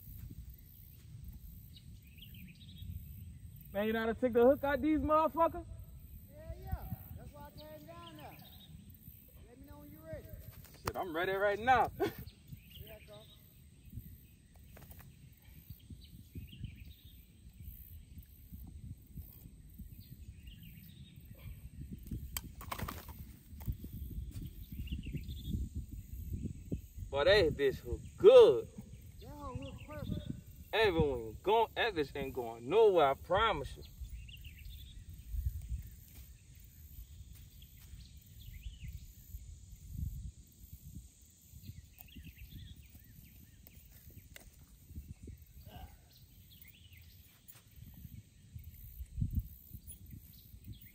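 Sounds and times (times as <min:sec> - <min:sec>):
wind buffeting microphone: 0:04.6 - 0:50.9
faint bird chirps: 0:33.7 - 0:50.9.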